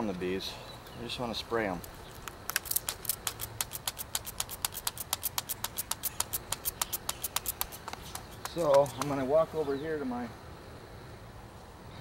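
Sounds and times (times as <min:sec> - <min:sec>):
spray bottle squirts: 0:02.5 - 0:08.9.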